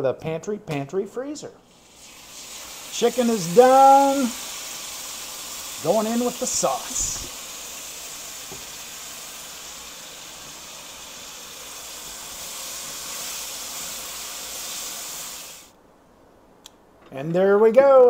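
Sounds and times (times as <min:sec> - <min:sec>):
sauce sizzling in skillet: 0:01.7 - 0:15.8.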